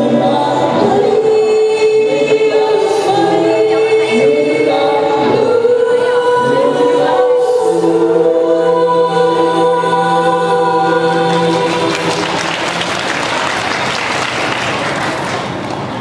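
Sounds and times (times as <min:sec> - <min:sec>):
vocal group singing a chord: 0:00.0 - 0:14.7
audience applause: 0:11.3 - 0:16.0.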